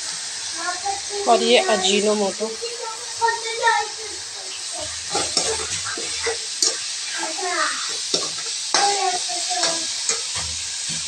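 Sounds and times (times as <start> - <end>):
oil sizzling: 0.0 - 11.0
spatula scraping a metal pan: 4.8 - 11.0.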